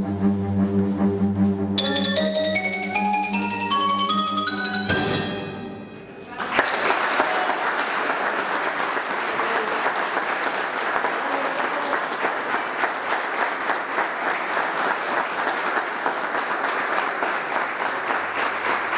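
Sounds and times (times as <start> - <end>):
audience applauding: 6.2 - 18.9.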